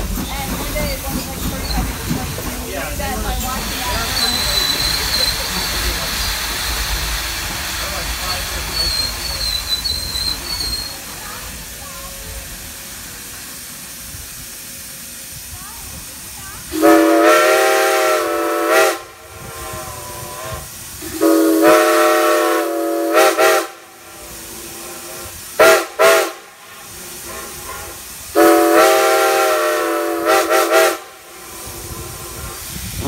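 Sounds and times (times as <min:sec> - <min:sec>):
train running noise: 0:00.0 - 0:33.0
steam locomotive whistle blasts: 0:16.7 - 0:26.5, 0:27.2 - 0:32.6.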